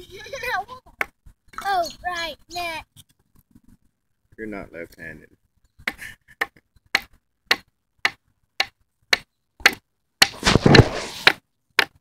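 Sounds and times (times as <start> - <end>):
hatchet chopping wooden stick: 5.8 - 12.0.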